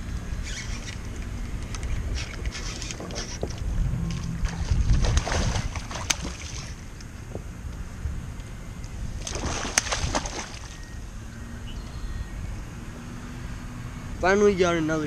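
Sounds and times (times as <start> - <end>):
fish splashing in water: 4.0 - 6.9, 9.2 - 10.9.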